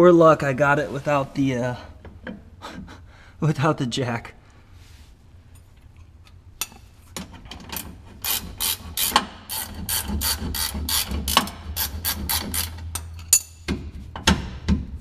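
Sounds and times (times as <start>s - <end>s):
ratchet wrench clicking: 7.8s - 13.5s.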